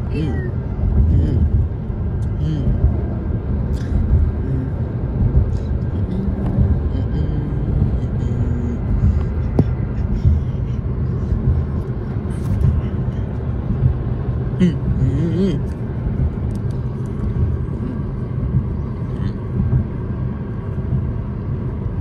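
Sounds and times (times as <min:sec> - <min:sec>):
road and tyre rumble: 0:00.0 - 0:22.0.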